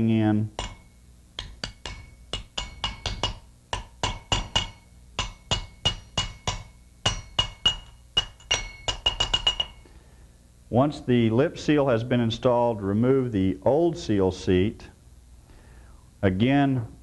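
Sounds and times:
hammer tapping on metal: 0.5s - 9.9s.

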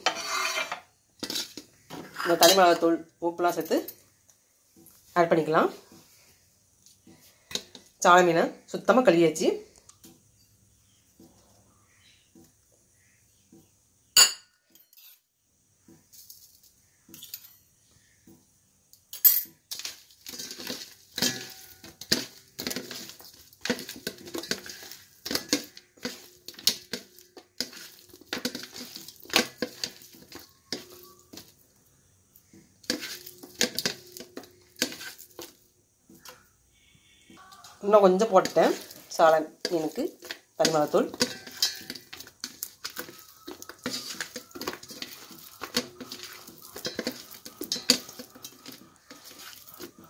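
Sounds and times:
fish clinking in steel bowl: 19.2s - 31.5s, 32.8s - 35.5s, 37.5s - 50.0s.

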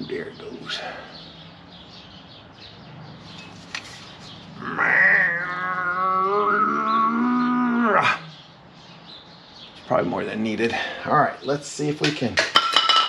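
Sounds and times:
long animal cry: 4.6s - 8.4s.

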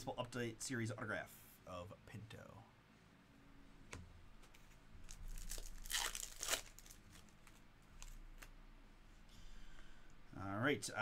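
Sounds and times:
foil pack crinkling and tearing: 5.0s - 8.2s.

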